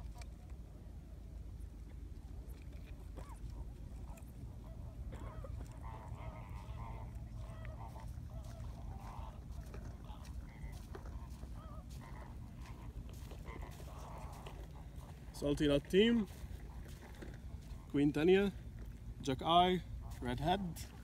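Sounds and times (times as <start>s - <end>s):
faint wavering calls: 3.0s - 15.4s.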